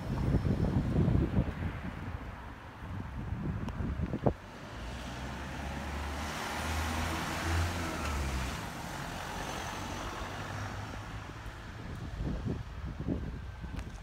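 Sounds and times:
car engine hum passing: 4.5 - 11.8.

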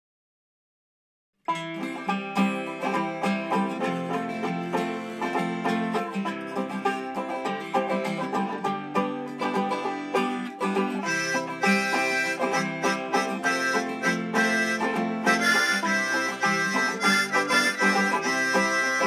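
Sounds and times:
plucked strings: 1.5 - 19.0
held melody line: 1.7 - 19.0.

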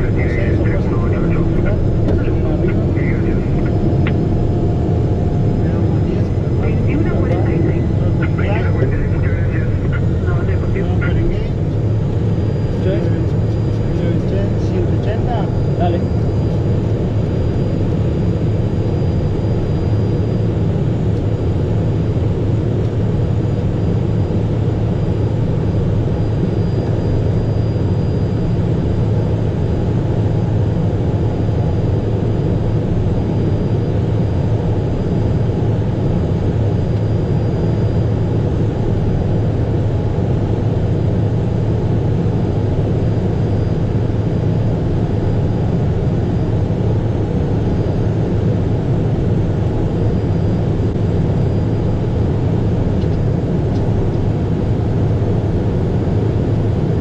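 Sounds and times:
jet cockpit noise: 0.0 - 57.0.

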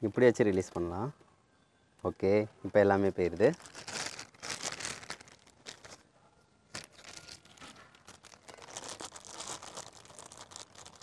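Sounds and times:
plastic bag crinkling: 3.0 - 6.1, 6.7 - 11.0.

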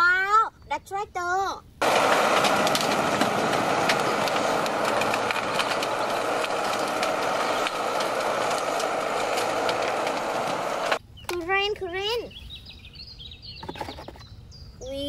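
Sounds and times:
tractor engine running: 1.8 - 11.0
sharp clicks and knocks: 1.8 - 11.4.

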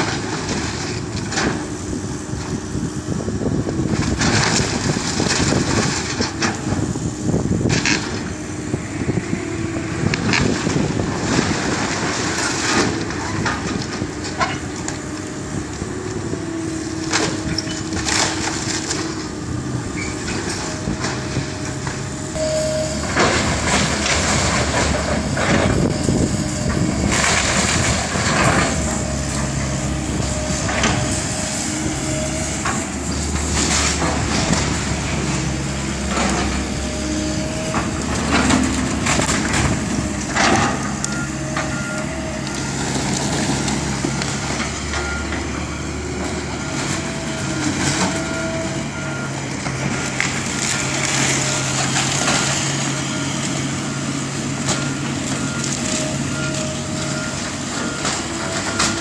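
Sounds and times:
excavator diesel engine: 0.0 - 59.0
wood cracking and splintering: 3.9 - 6.9, 16.8 - 19.4, 37.4 - 41.7, 42.4 - 45.0
beeping alarm: 22.4 - 27.1.

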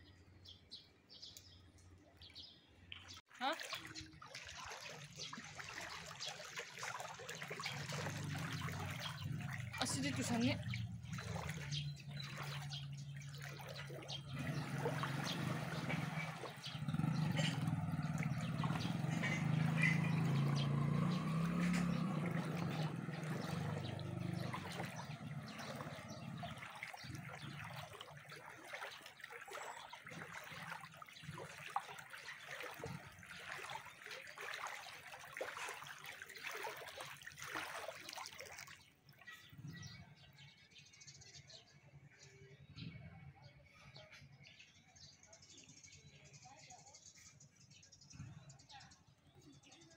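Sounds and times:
floodwater sloshing and splashing: 1.2 - 40.4.

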